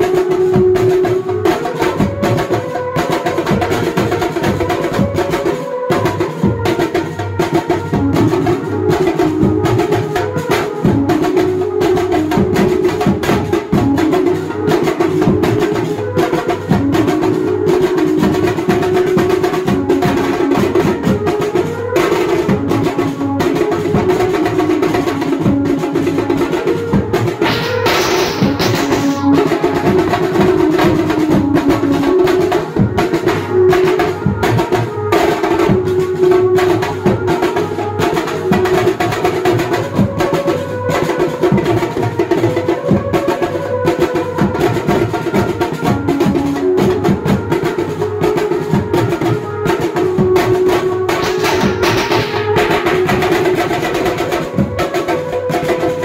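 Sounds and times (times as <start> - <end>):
driving drumming: 0.0 - 56.0
fast melody line: 7.9 - 39.1, 48.9 - 54.7
short burst of noise: 27.4 - 29.3.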